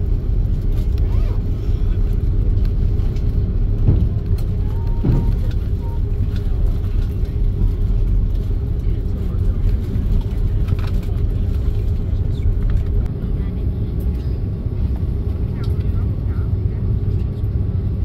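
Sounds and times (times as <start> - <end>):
airliner engine rumble: 0.0 - 18.0
constant cabin hum: 0.0 - 18.0.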